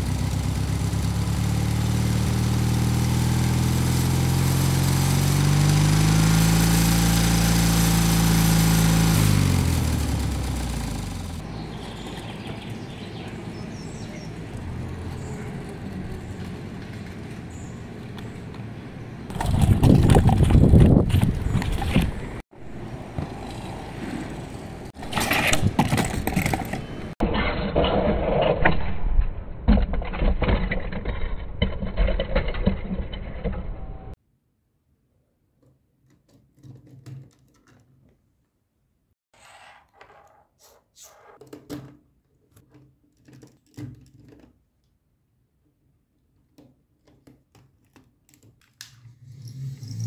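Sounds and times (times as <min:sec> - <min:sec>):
toy wheels rumbling on boards: 0:14.6 - 0:18.6, 0:19.3 - 0:27.2
plastic parts rattling: 0:41.4 - 0:44.6.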